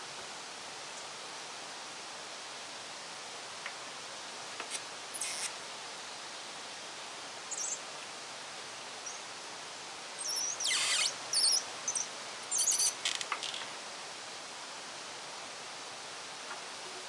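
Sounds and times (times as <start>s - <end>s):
steady background hiss: 0.0s - 17.0s
high wavy chirps: 10.2s - 13.0s
hand pump hissing spurts: 10.3s - 11.6s.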